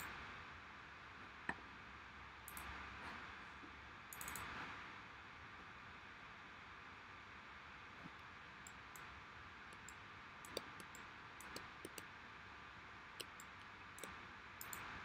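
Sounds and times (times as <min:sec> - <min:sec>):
computer keys clicking: 0:02.5 - 0:02.8, 0:04.1 - 0:04.5, 0:08.6 - 0:09.1, 0:09.7 - 0:12.1, 0:13.2 - 0:15.0
mouse clicks: 0:02.5 - 0:02.8, 0:04.1 - 0:04.5, 0:08.0 - 0:09.1, 0:09.7 - 0:12.1, 0:13.2 - 0:15.0.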